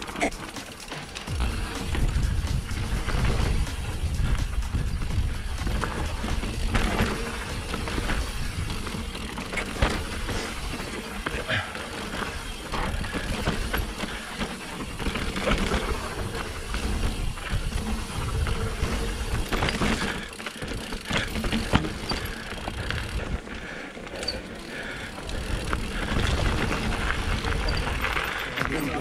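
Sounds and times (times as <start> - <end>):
bike rattling clicks and knocks: 0.0 - 29.0
tyre and wind rumble: 0.8 - 23.9, 24.6 - 29.0.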